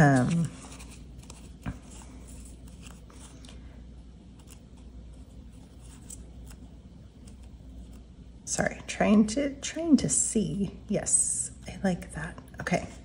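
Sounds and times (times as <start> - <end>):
paper rustling: 0.0 - 3.6.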